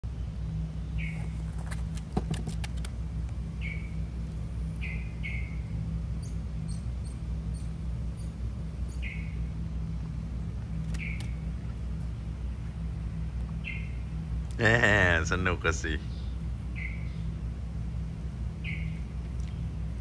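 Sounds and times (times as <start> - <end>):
low hum: 0.0 - 20.0
small animal chirping: 1.0 - 1.5, 4.8 - 9.4, 10.9 - 11.4
sharp clicks: 10.8 - 11.4.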